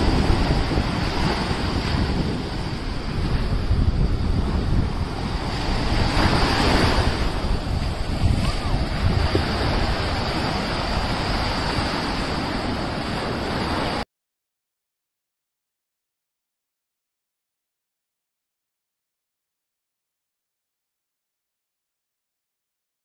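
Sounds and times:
sea waves breaking on shore: 0:00.0 - 0:14.0
wind buffeting microphone: 0:00.0 - 0:14.0.

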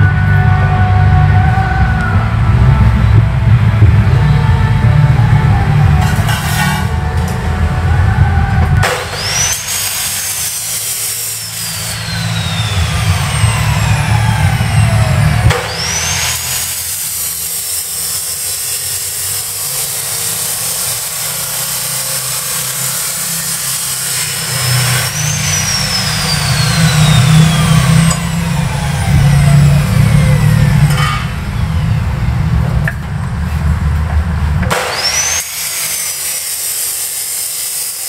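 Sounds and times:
low rumble: 0:00.0 - 0:10.6, 0:11.4 - 0:16.9, 0:25.0 - 0:34.7
high whine spinning up and down: 0:00.0 - 0:36.4.

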